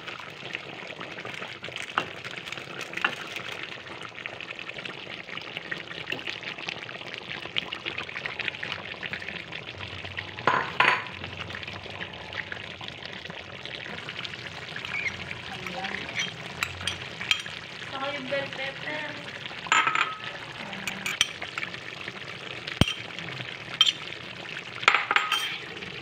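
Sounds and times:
curry sizzling in a wok: 0.0s - 26.0s
spatula scraping a wok: 14.4s - 17.0s, 25.2s - 25.7s.

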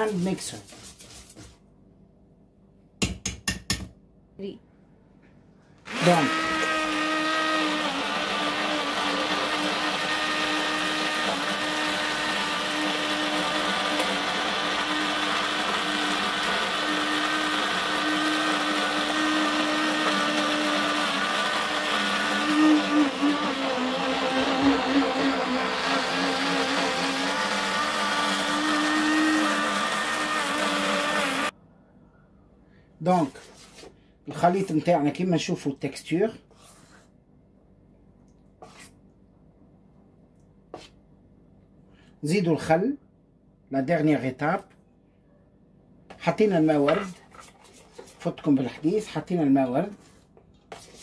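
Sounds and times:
immersion blender motor whine: 5.8s - 31.5s.

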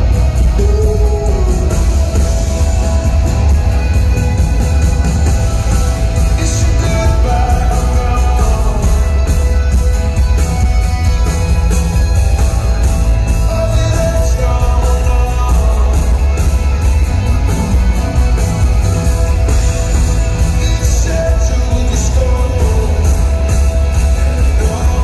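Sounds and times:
man singing: 0.0s - 3.4s, 6.0s - 10.0s, 13.1s - 17.8s, 20.3s - 25.0s
acoustic guitar: 0.0s - 25.0s
heavy bass: 0.0s - 25.0s
keyboards: 0.0s - 25.0s.

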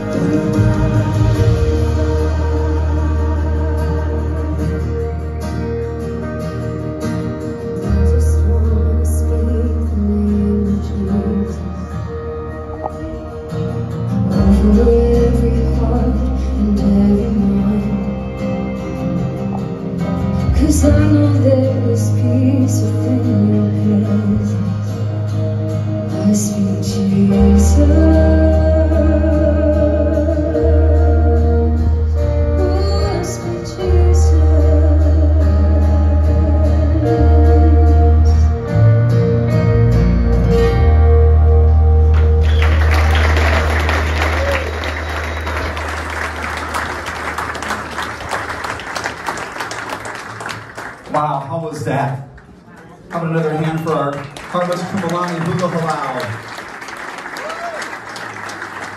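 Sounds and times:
person singing: 0.0s - 5.7s, 14.3s - 19.6s, 26.0s - 38.8s
sustained bass notes: 0.0s - 48.3s
acoustic guitar: 0.0s - 58.9s
audience applause: 42.1s - 51.5s, 52.3s - 58.9s.

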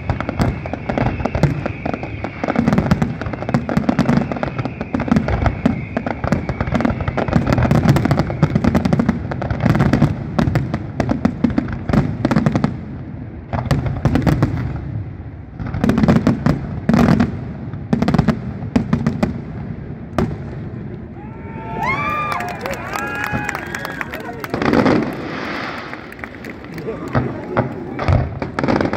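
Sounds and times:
fireworks bursting: 0.0s - 21.2s, 21.8s - 28.9s.

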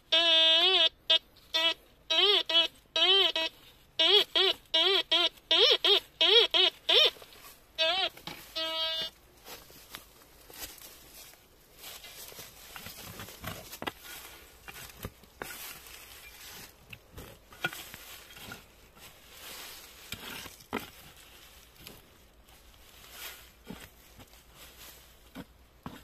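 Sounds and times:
footsteps crunching dry leaves: 8.4s - 25.3s.

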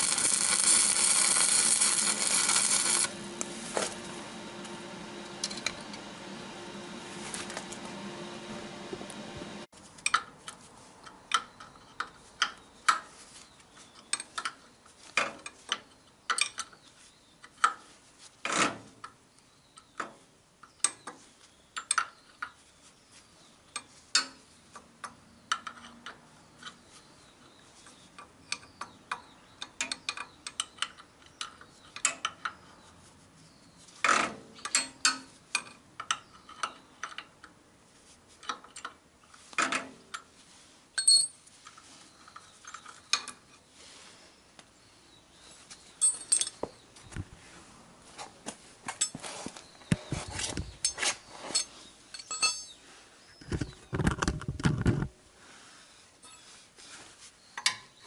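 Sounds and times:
wrench clinking on steel bolts: 41.0s - 41.4s, 46.0s - 46.7s, 50.8s - 52.8s.

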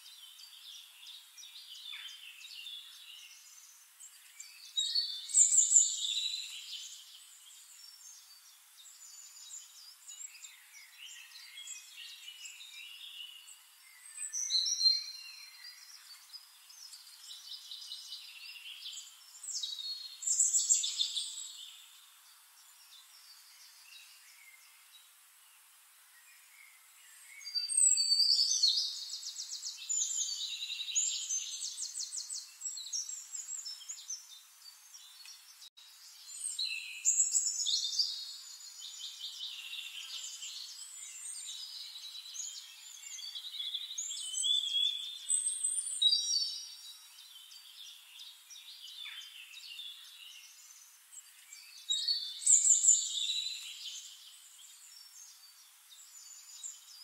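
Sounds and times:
bird trills and chirps: 27.2s - 34.4s, 35.0s - 57.0s.

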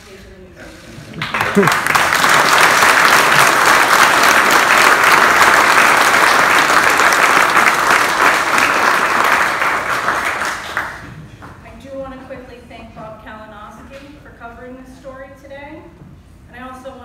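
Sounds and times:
audience applauding: 1.1s - 11.1s.

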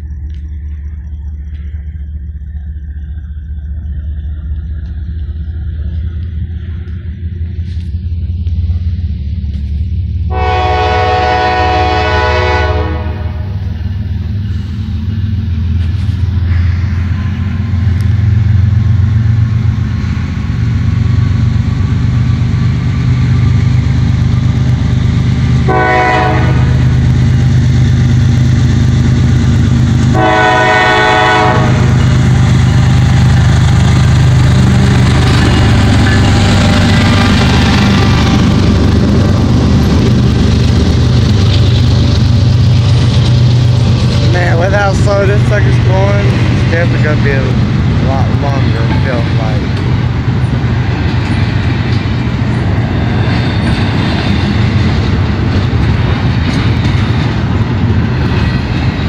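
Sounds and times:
diesel locomotive rumble: 0.0s - 59.0s
locomotive air horn blasts: 10.3s - 13.6s, 25.6s - 26.9s, 30.1s - 32.1s.

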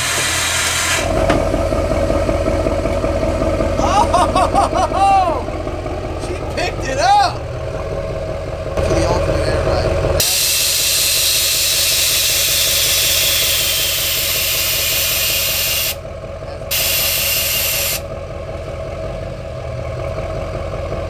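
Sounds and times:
air suspension hissing: 0.0s - 1.2s, 10.2s - 16.0s, 16.7s - 18.1s
diesel engine idling: 0.0s - 21.0s.

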